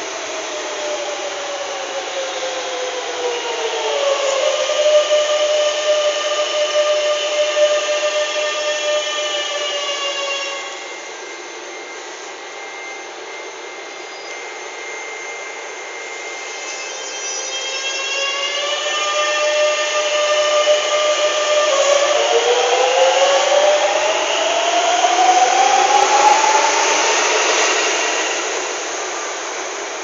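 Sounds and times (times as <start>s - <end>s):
electric train motor whine: 0.0s - 30.0s
steady high hum: 19.5s - 30.0s.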